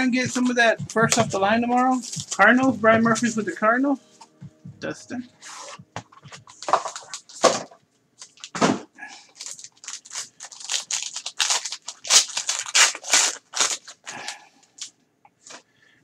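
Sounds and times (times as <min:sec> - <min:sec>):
foil wrapper tearing and crinkling: 0:06.5 - 0:07.6, 0:08.2 - 0:14.9.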